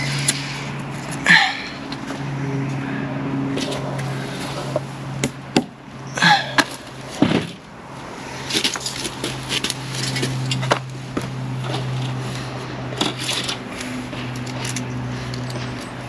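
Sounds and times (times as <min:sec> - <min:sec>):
low machine hum: 0:00.0 - 0:08.4.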